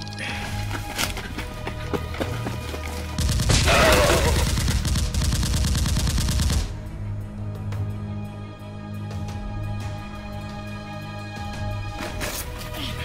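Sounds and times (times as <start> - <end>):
automatic gunfire: 3.2 - 6.7.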